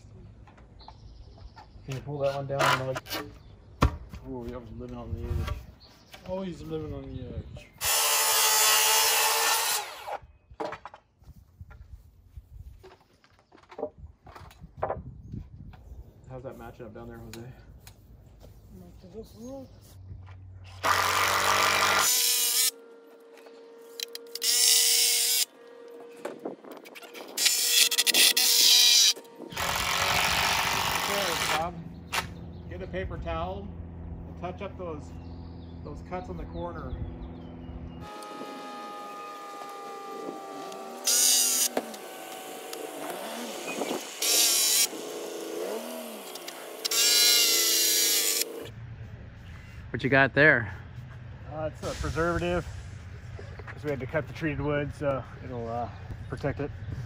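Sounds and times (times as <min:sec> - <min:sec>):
cordless drill driving screws: 0:07.8 - 0:10.2, 0:24.2 - 0:25.5, 0:27.4 - 0:31.7, 0:38.0 - 0:45.1, 0:46.2 - 0:48.7.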